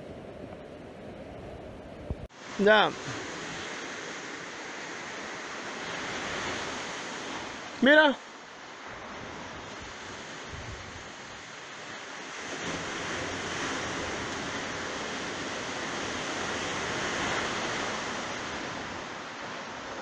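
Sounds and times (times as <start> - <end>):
ocean surf rushing: 0.0 - 20.0.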